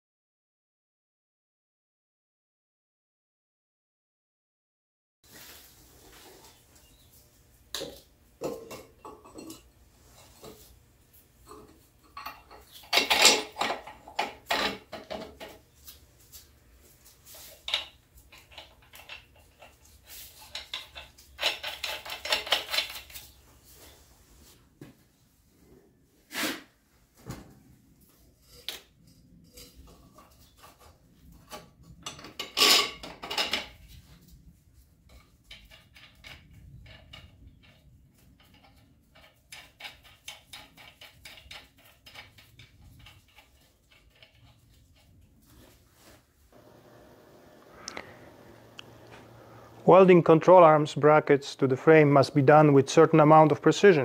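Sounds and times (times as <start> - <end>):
steel parts clinking and clanking: 7.7 - 10.7, 11.4 - 15.6, 17.4 - 23.4, 31.5 - 33.8.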